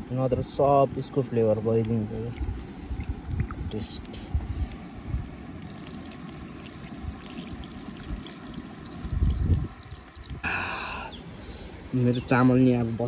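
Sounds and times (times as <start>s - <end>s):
water trickling and splashing: 0.0s - 12.8s.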